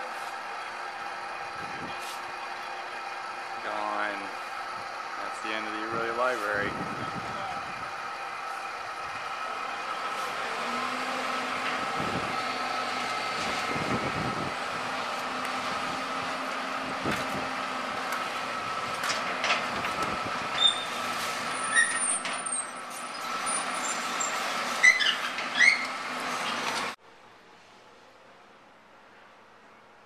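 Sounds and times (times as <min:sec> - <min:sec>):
excavator diesel engine running: 0:00.0 - 0:27.0
short sharp high squeaks: 0:20.6 - 0:26.0.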